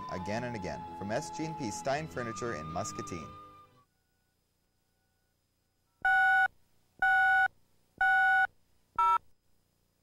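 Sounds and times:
shorter beep at different pitch: 6.0s - 9.2s.

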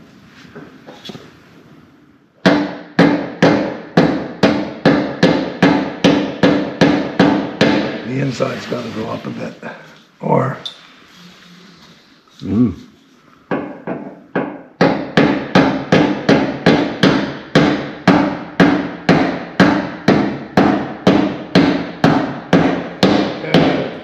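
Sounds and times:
hammer on metal: 2.4s - 8.0s, 13.5s - 24.0s.

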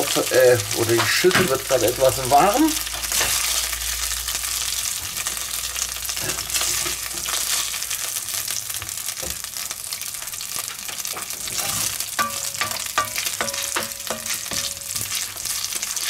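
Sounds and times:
meat sizzling in hot fat: 0.0s - 16.0s
spatula scraping a pot: 10.8s - 16.0s
spatula clicking on a pot: 12.2s - 15.5s.

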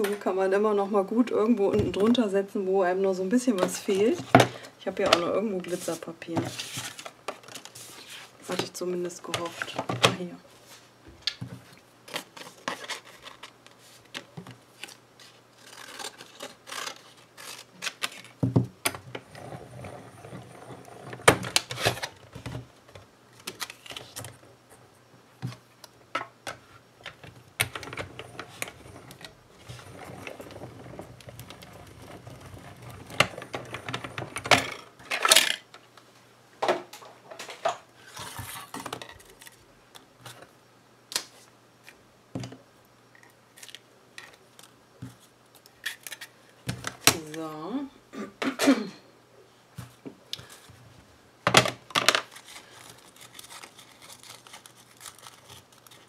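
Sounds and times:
rollers rumbling: 27.8s - 34.8s.

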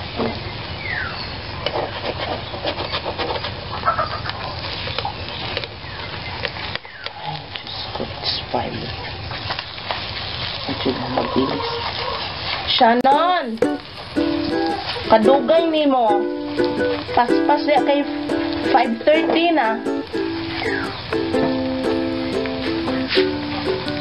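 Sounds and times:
eggs sizzling in frying pan: 7.8s - 24.0s.

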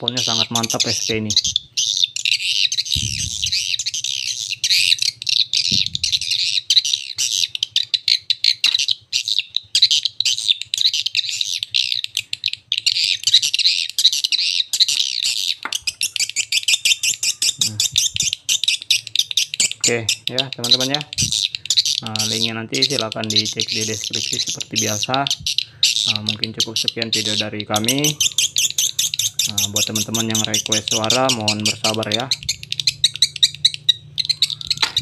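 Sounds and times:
rapid high bird chirps: 0.0s - 35.0s
low hum: 2.9s - 4.0s, 5.7s - 6.4s.

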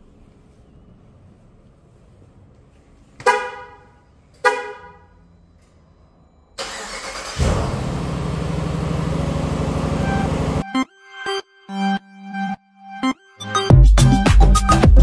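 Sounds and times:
car horn chirps: 3.2s - 5.2s, 9.8s - 10.6s
engine running: 6.6s - 10.6s.

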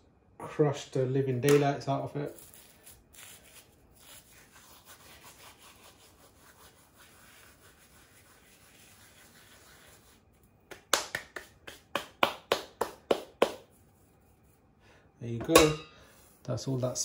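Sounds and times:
palms slapping together: 10.7s - 13.7s.

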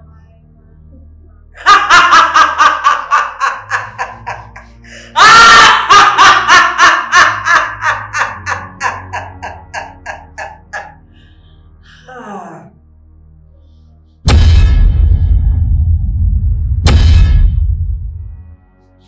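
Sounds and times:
woman laughing loudly: 1.6s - 11.0s.

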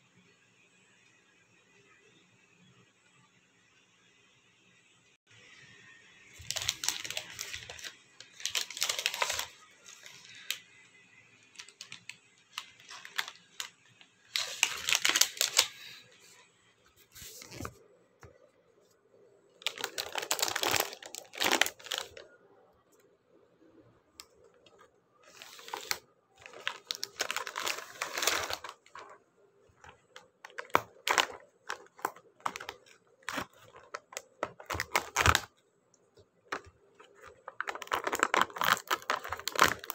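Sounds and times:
plastic wrapper rustling and tearing: 6.3s - 10.8s, 11.4s - 16.4s, 19.6s - 22.4s, 24.2s - 35.6s, 36.4s - 39.9s.

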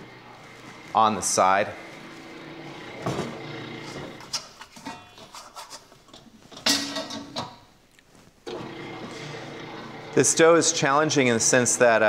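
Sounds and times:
kitchen containers and utensils knocking: 4.2s - 7.7s.

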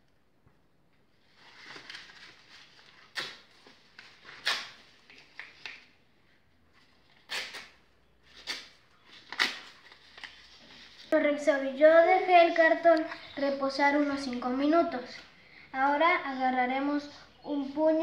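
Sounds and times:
cardboard tearing: 8.3s - 10.4s.

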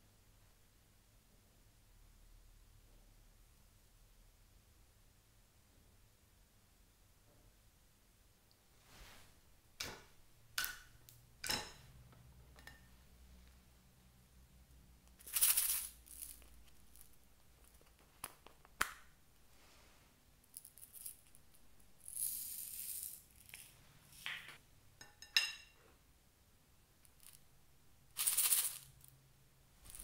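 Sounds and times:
beads rattling in tin: 15.2s - 17.9s, 20.5s - 23.8s, 28.2s - 29.1s.

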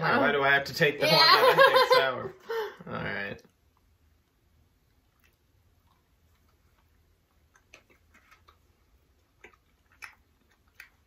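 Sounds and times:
mouth clicks from chewing: 5.2s - 11.0s.

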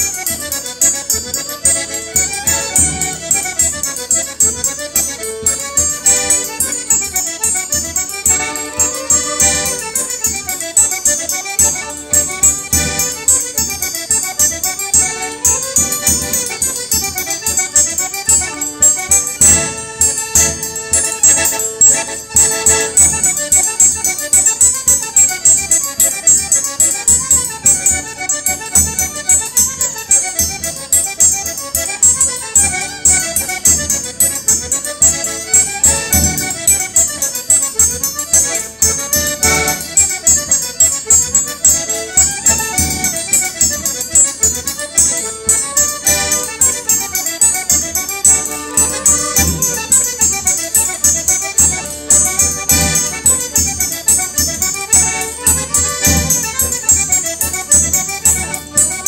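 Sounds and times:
accordion chords: 0.0s - 59.0s
violin melody: 0.0s - 59.0s.

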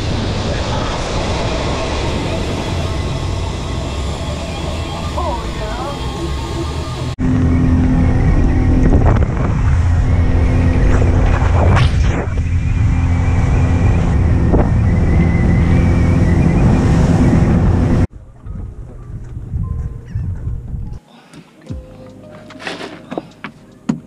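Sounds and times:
wind buffeting microphone: 0.0s - 21.0s
boat motor droning: 1.2s - 11.3s.

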